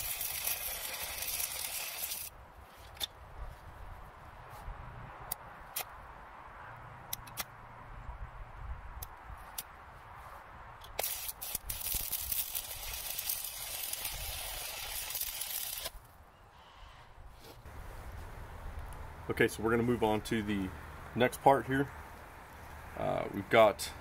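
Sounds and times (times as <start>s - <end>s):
welding arc crackling and hissing: 0.0s - 2.3s, 11.0s - 16.0s.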